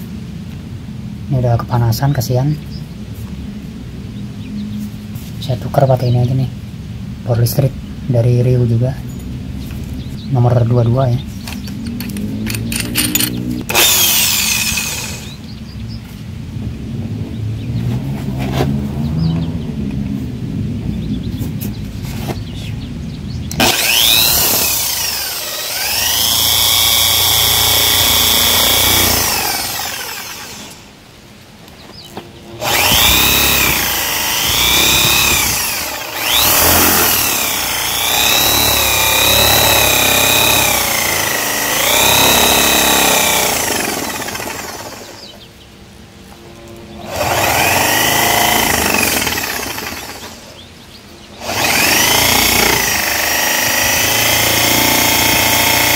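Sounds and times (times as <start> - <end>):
drill bit grinding into wood: 11.6 - 15.4, 23.5 - 30.8, 32.6 - 45.3, 46.9 - 50.5, 51.4 - 55.9
electric drill motor whine: 12.0 - 15.5, 23.5 - 30.9, 32.4 - 45.4, 46.4 - 50.5, 51.4 - 55.9.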